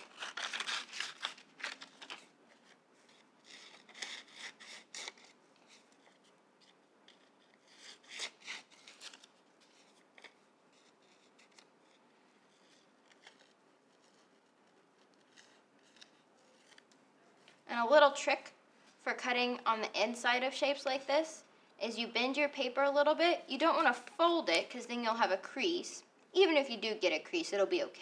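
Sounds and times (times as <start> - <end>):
scissors snipping paper: 0.0 - 2.2, 3.5 - 5.3.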